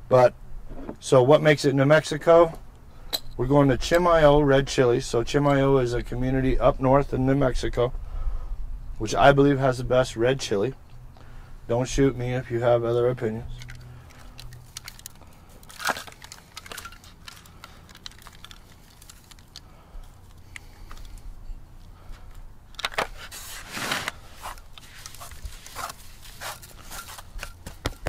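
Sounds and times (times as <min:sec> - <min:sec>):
rustling foil pan: 0:13.7 - 0:19.6, 0:22.8 - 0:28.0.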